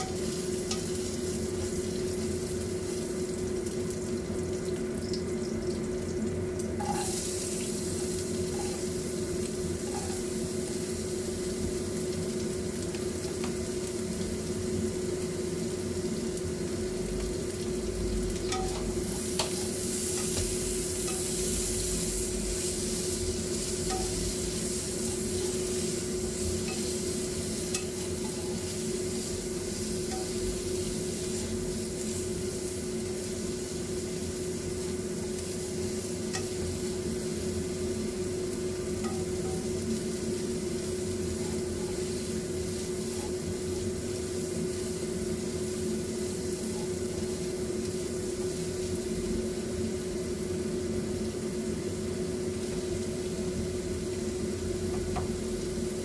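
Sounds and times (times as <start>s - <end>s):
steady low hum: 0.0s - 4.3s, 5.2s - 56.0s
hot oil sizzling and bubbling: 0.0s - 56.0s
meat sizzling in a wok: 0.0s - 56.0s
spatula tapping a pan: 18.4s - 21.4s, 23.8s - 24.4s, 26.3s - 28.8s, 30.0s - 30.5s, 36.3s - 37.0s, 39.0s - 39.8s, 54.9s - 55.4s.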